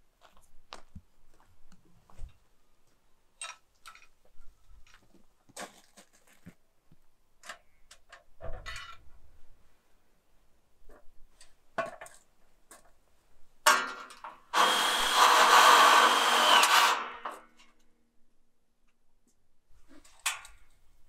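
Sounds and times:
loud harsh rasp: 14.6 - 17.2.

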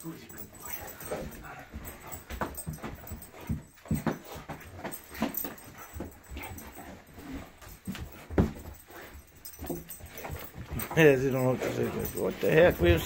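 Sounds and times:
dog scuffling and knocks: 0.4 - 13.0.

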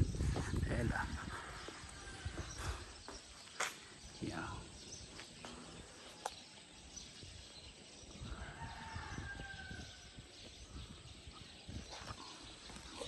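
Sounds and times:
rooster crowing: 8.3 - 10.0.

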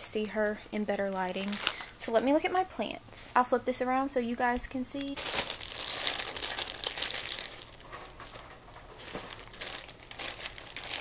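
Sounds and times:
plastic bag crinkling: 1.0 - 2.2, 5.0 - 11.0.

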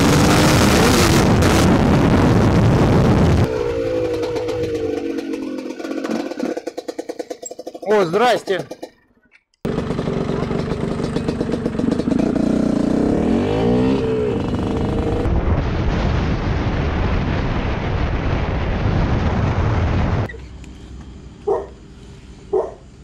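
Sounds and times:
wind noise: 0.0 - 3.6, 14.0 - 20.9
motorcycle engine revving: 0.0 - 15.3
dog barking: 21.5 - 21.8, 22.5 - 22.8.

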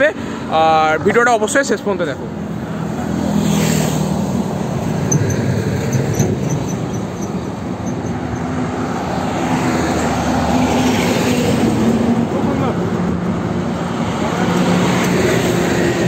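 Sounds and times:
tyre and road noise: 0.0 - 16.0.

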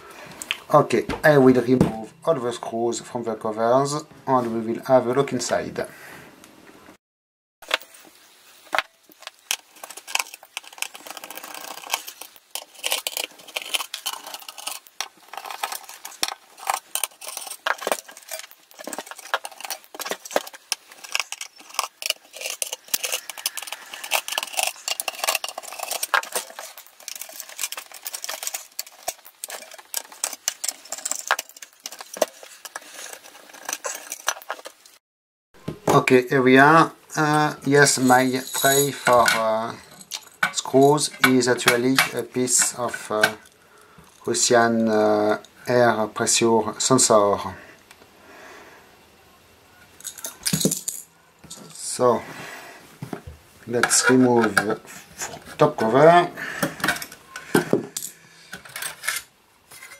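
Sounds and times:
screwdriver clicking and scraping metal: 9.1 - 35.0, 53.7 - 56.0, 56.6 - 59.9
screws clinking into metal tray: 9.9 - 34.6, 37.9 - 43.6.

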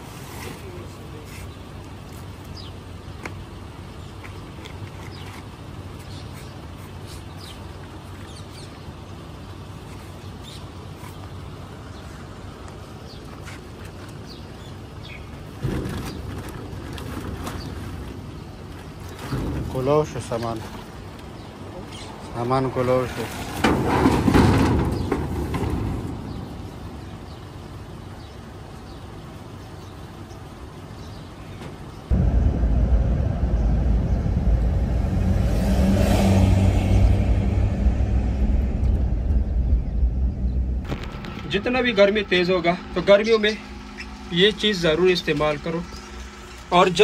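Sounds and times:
distant traffic rumble: 0.0 - 47.0
small birds chirping: 0.6 - 16.7, 20.3 - 22.6, 26.2 - 32.1
steady low hum: 32.1 - 47.0.

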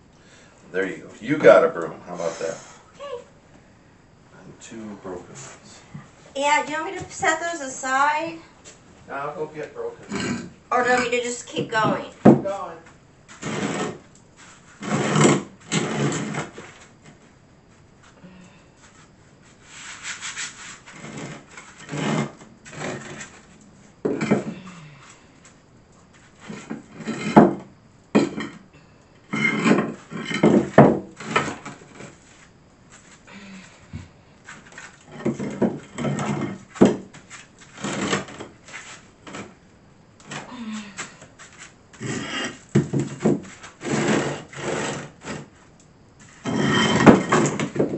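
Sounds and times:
tiles scraping across floor: 13.3 - 17.2, 18.8 - 24.6, 26.1 - 27.6, 29.3 - 33.2, 34.4 - 39.6, 40.8 - 45.6, 46.2 - 47.9.

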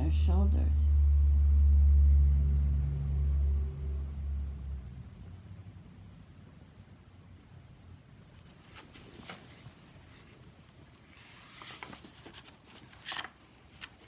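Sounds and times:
page turning rustle: 8.3 - 14.0.

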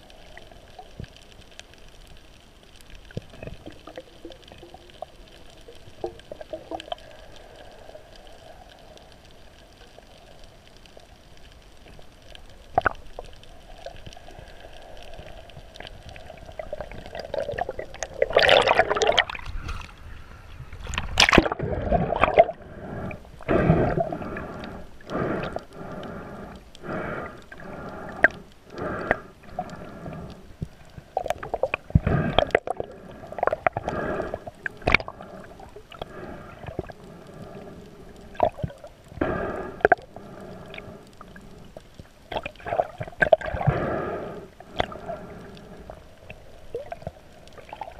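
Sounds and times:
gurgling water pulses: 0.0 - 47.9
muffled underwater wash: 0.0 - 47.9
rush of air bubbles: 12.7 - 19.8, 20.8 - 30.3, 31.0 - 37.0, 38.3 - 41.5, 42.3 - 45.4, 46.3 - 47.9.

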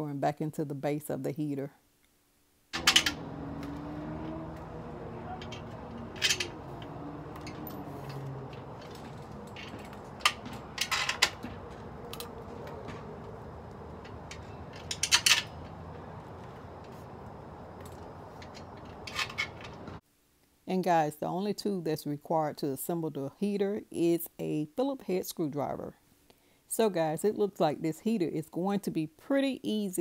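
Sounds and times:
steady background hiss: 0.0 - 28.0
metal screws clinking on metal: 2.8 - 4.6, 5.4 - 13.4, 14.0 - 15.8.

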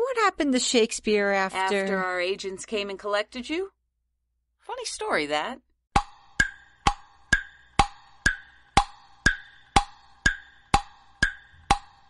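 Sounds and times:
wood block struck in a beat: 6.0 - 12.0.

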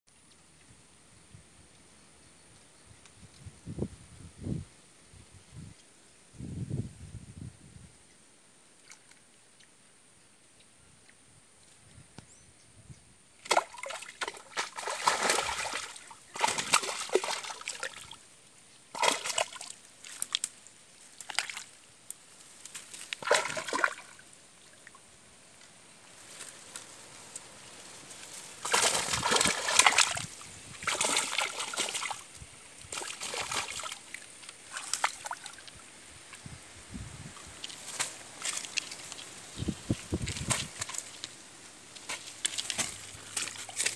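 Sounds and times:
fish thrashing and splashing in water: 13.4 - 18.2, 18.9 - 20.4, 23.0 - 24.2, 28.6 - 35.8, 37.6 - 39.4, 40.0 - 41.3, 42.1 - 43.9.

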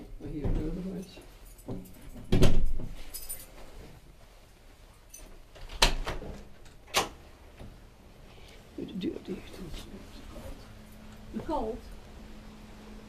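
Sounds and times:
keys jangling: 3.0 - 3.6
door being unlocked and opened: 5.6 - 7.2.

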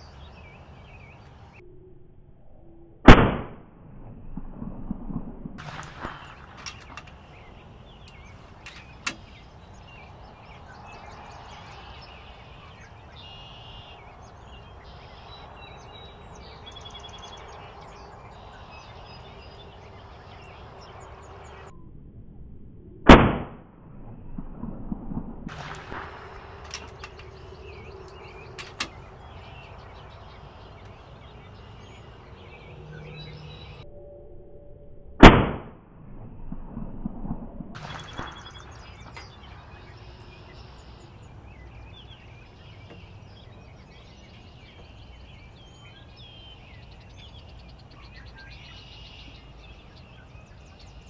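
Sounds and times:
air rifle shot cracks: 3.1 - 3.6, 5.6 - 9.4, 23.1 - 23.6, 25.5 - 29.7, 35.2 - 35.8
light clicks and knocks: 8.0 - 9.4.

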